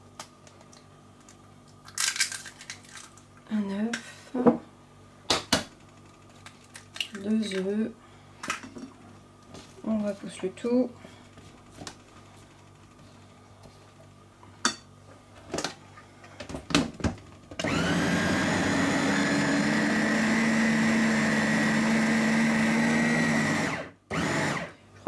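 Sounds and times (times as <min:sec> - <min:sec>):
food chopper motor whirring: 0:17.6 - 0:24.8.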